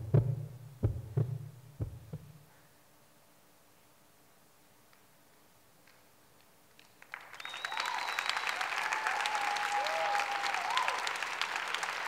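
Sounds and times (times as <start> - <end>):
audience applause: 6.8 - 12.0
long held cheers: 7.2 - 12.0.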